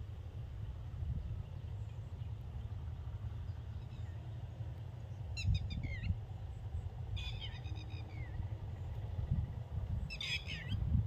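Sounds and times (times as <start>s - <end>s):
steady low rumble: 0.0s - 11.0s
bird chirping: 5.0s - 9.0s, 10.0s - 10.8s.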